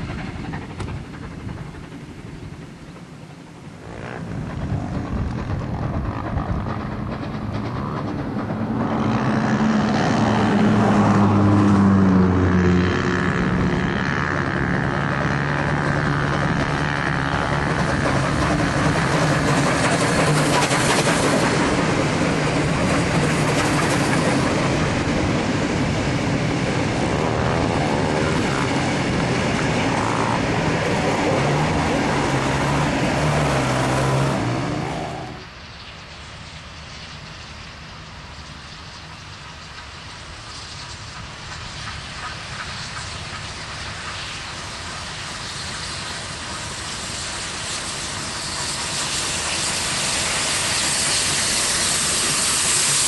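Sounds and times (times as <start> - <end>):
steam locomotives passing: 0.0 - 53.0.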